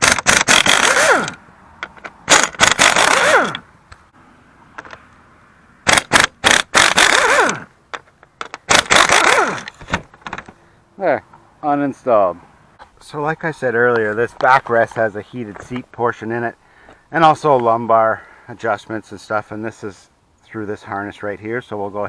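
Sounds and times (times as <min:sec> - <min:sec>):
tool motor winding down: 0:00.0 - 0:01.4, 0:02.3 - 0:03.6, 0:05.9 - 0:07.7, 0:08.7 - 0:09.8
impact wrench hammering bolts: 0:00.0 - 0:03.6, 0:05.9 - 0:10.5.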